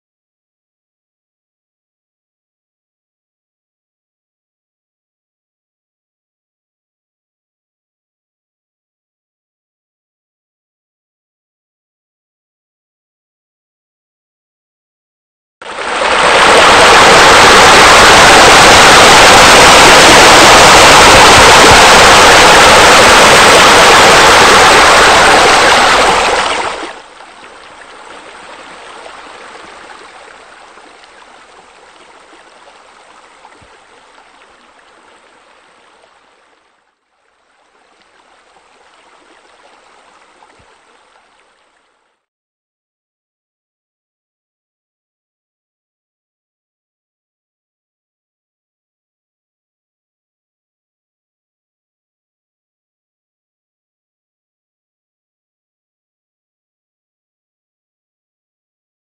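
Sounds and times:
water rushing and splashing: 0:15.6 - 0:42.0.

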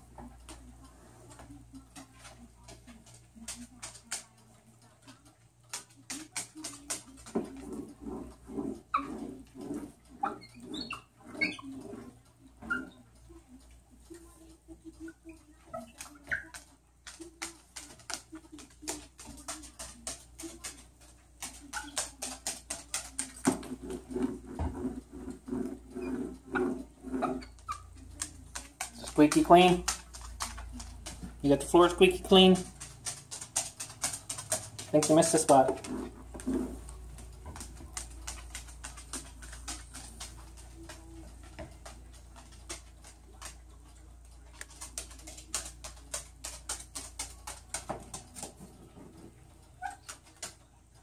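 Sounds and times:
bird claws tapping on vinyl floor: 0:01.3 - 0:09.8, 0:15.7 - 0:50.7.

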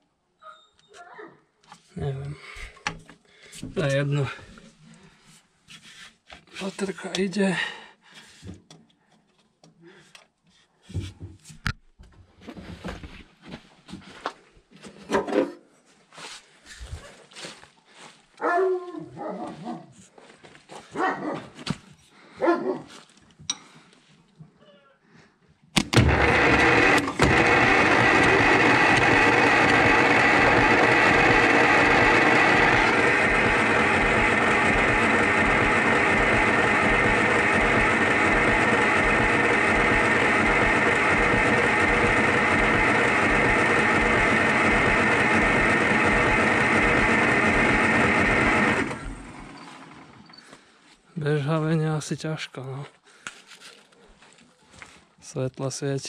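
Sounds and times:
diesel engine starter cranking: 0:25.8 - 0:50.4.

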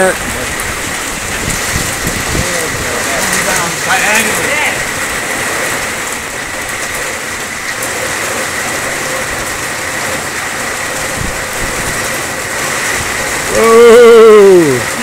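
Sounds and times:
heavy rain on pool and concrete: 0:00.0 - 0:15.0.

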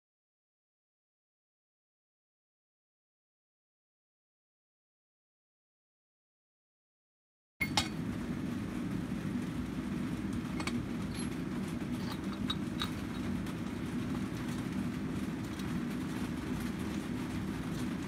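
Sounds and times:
workshop machinery rumble: 0:07.6 - 0:18.0.

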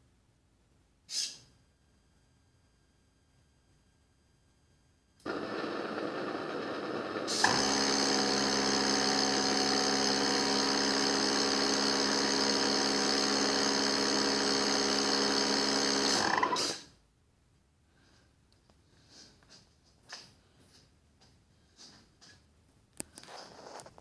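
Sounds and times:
gas hissing: 0:05.3 - 0:08.4.

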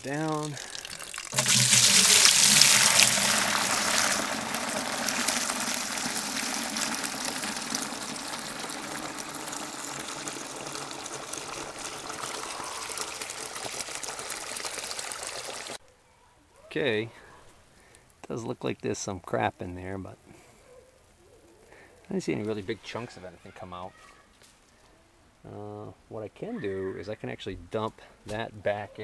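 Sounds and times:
liquid pouring into metal bucket: 0:00.0 - 0:15.8.

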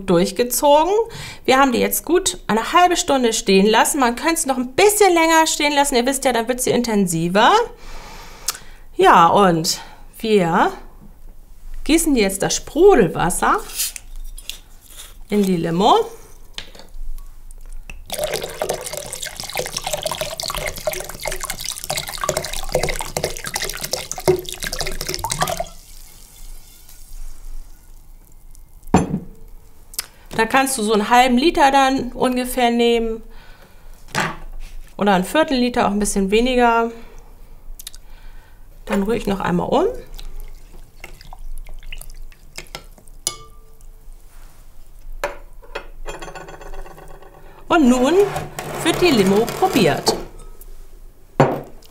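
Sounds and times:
liquid fizzing: 0:18.0 - 0:28.9, 0:40.0 - 0:42.8
water pouring into a glass bowl: 0:18.1 - 0:28.9, 0:40.1 - 0:43.2
spoon clinking against glass: 0:43.2 - 0:43.9.

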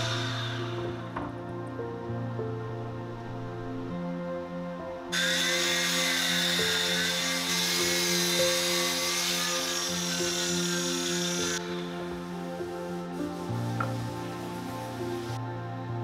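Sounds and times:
miter saw cutting wood: 0:00.0 - 0:01.2, 0:05.2 - 0:15.2
soft background music: 0:00.0 - 0:16.0.

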